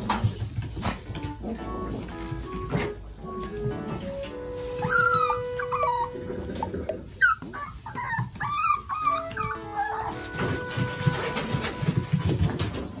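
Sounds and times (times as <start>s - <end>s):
puppy whining and yelping: 4.3s - 10.9s.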